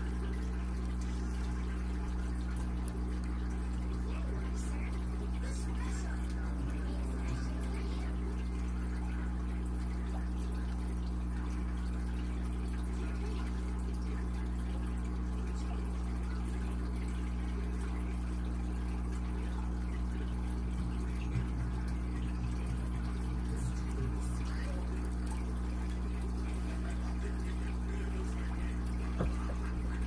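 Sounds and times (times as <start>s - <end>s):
small motor humming: 0.0s - 9.3s.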